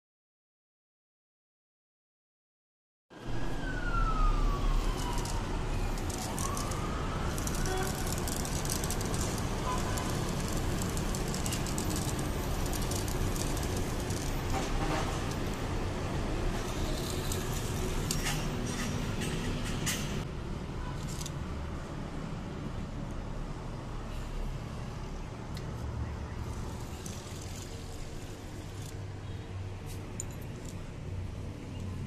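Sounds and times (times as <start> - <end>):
siren wailing: 3.2 - 14.6.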